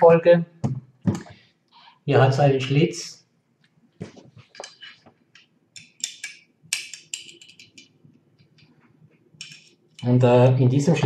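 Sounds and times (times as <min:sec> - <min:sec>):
small metal parts clicking: 0:05.8 - 0:07.9, 0:09.4 - 0:10.0.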